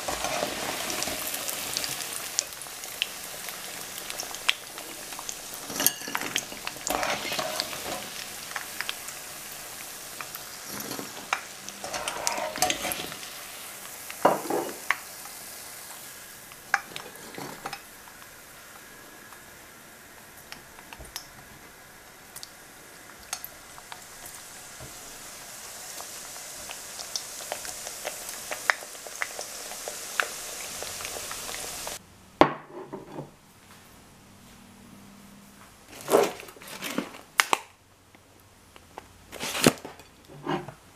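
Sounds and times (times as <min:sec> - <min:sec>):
hot oil sizzling: 0:00.0 - 0:32.0.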